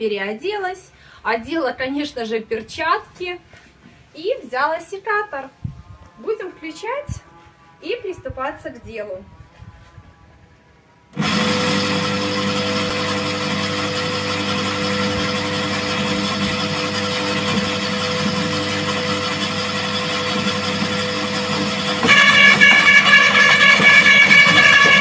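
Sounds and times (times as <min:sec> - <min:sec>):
garden shredder motor running: 0:11.1 - 0:25.0.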